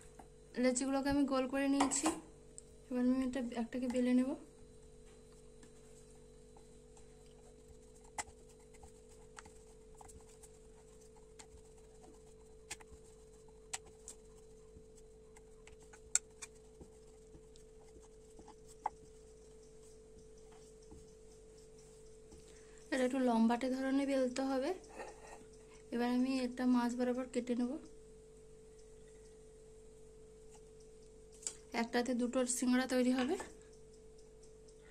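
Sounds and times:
faint steady hum: 0:00.0 - 0:34.9
rolling pin rolling dough: 0:05.1 - 0:25.5.

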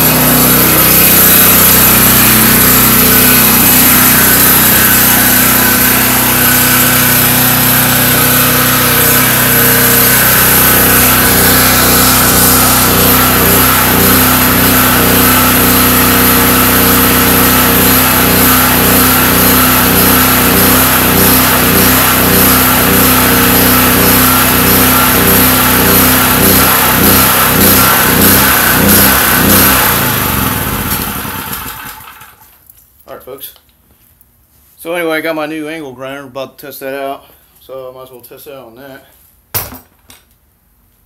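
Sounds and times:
generator engine chugging: 0:00.0 - 0:32.3.

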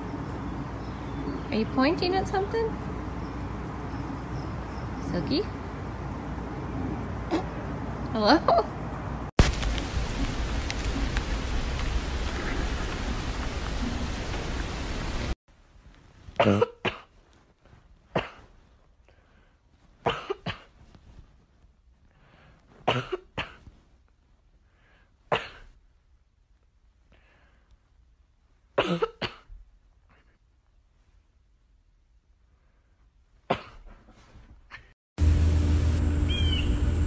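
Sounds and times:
short dry coughs: 0:16.4 - 0:17.1, 0:18.1 - 0:18.5, 0:20.0 - 0:20.8, 0:22.8 - 0:23.7, 0:33.5 - 0:34.0.

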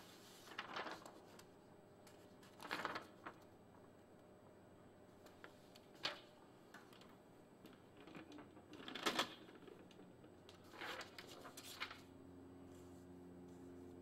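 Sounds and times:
paper rustling: 0:00.0 - 0:03.5, 0:10.5 - 0:12.1.

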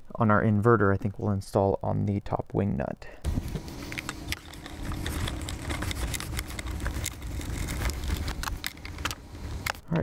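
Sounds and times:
low steady rumble: 0:03.2 - 0:10.0.

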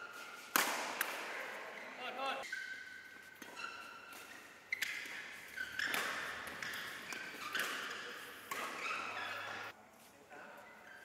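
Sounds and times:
racket hitting shuttlecock: 0:00.0 - 0:01.6, 0:02.5 - 0:09.7
shoes squeaking on court: 0:01.7 - 0:09.7, 0:10.6 - 0:11.0.

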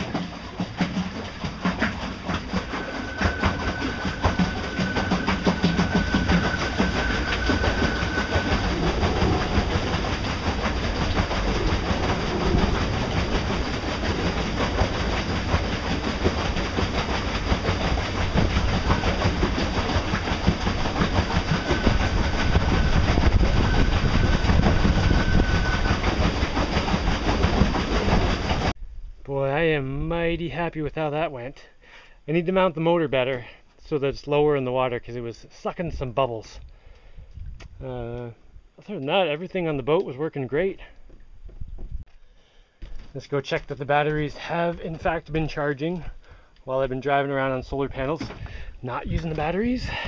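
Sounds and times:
water slapping along hull: 0:00.0 - 0:28.8, 0:42.8 - 0:46.6, 0:47.2 - 0:50.0
faint high whine: 0:02.6 - 0:10.2
wind on microphone: 0:02.8 - 0:16.8, 0:18.0 - 0:29.2, 0:37.1 - 0:37.9.

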